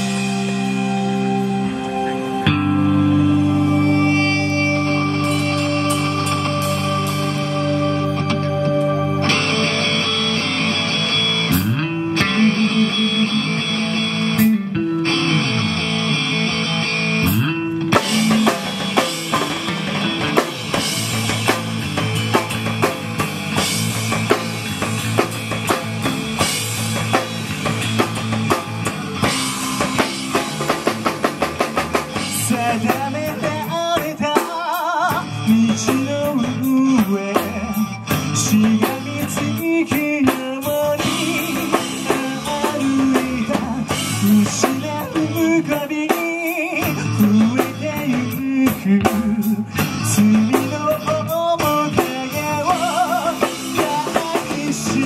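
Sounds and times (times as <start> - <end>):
person singing: 0.0 - 9.7, 12.2 - 14.6, 32.2 - 55.0
drum kit playing: 0.0 - 55.0
electric guitar chords: 0.0 - 55.0
rock band playing: 0.0 - 55.0.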